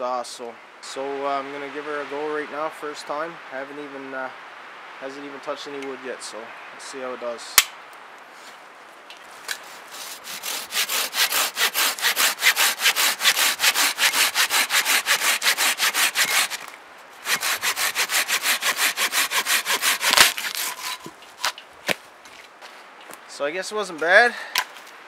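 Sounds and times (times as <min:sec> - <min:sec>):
hand saw cutting log: 0:09.5 - 0:21.6
wood cracking: 0:10.5 - 0:22.0.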